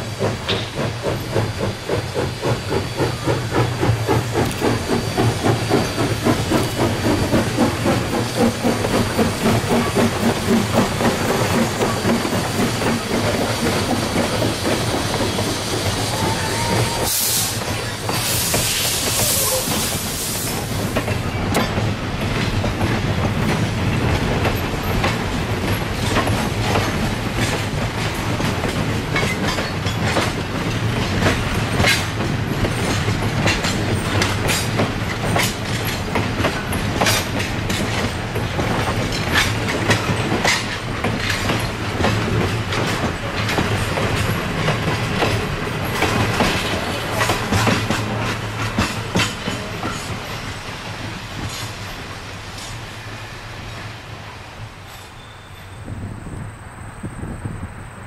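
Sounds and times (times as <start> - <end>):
hiss: 0.0 - 21.1
train coaches rumbling past: 0.0 - 58.0
wheels clicking over rail joints: 0.2 - 2.2, 20.9 - 50.3.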